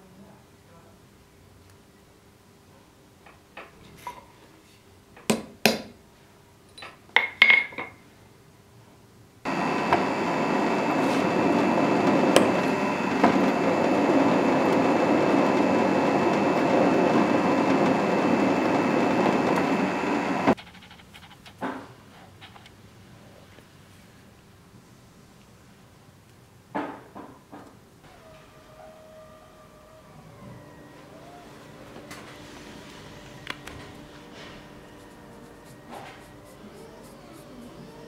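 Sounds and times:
drill press drilling into metal: 9.5s - 20.6s.

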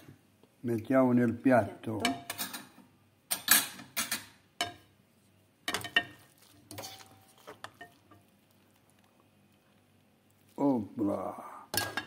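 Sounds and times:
metal utensil scraping frying pan: 5.7s - 8.2s.

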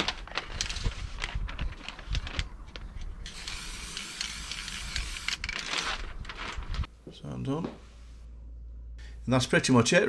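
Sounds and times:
spray paint can hissing: 3.3s - 5.3s.

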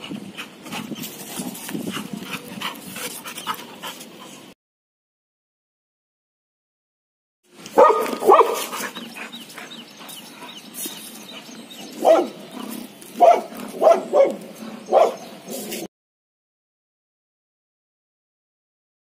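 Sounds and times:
dog barking: 7.8s - 8.9s, 12.0s - 12.4s, 13.2s - 15.3s.

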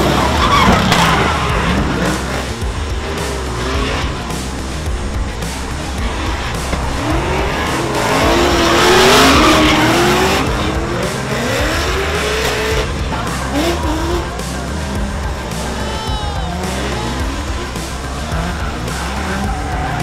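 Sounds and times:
tyre squeal: 0.0s - 2.3s
car engines revving: 0.0s - 20.0s.

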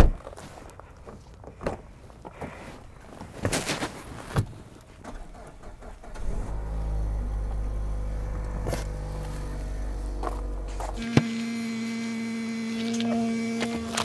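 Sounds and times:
car engine starting and idling: 5.0s - 14.0s.

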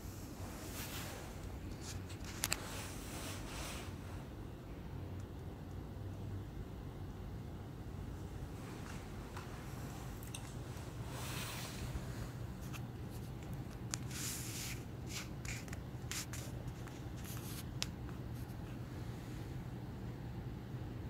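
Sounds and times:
soft rustling: 0.0s - 4.3s, 8.4s - 19.5s
steady low hum: 0.0s - 21.0s.

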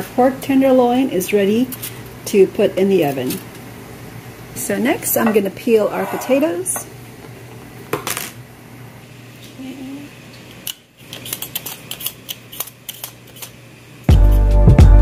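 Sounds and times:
background music: 14.1s - 15.0s.

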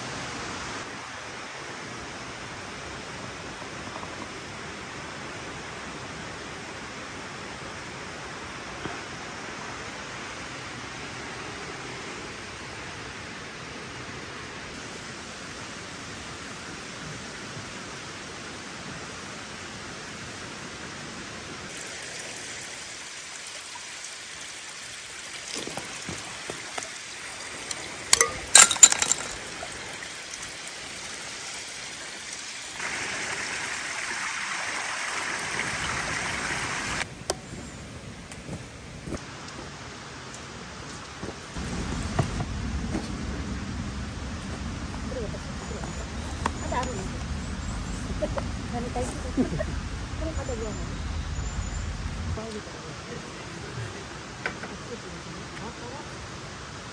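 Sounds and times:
running water: 20.5s - 37.4s
sharp clinks: 28.1s - 29.7s.

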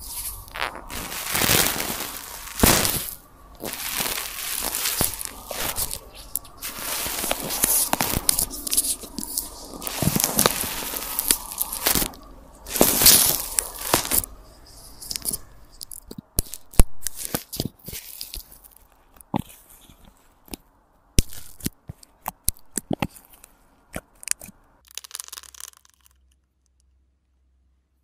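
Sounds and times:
slime crackling and popping: 0.0s - 14.4s, 15.0s - 20.6s, 21.2s - 26.4s
short hiss: 0.0s - 15.6s.

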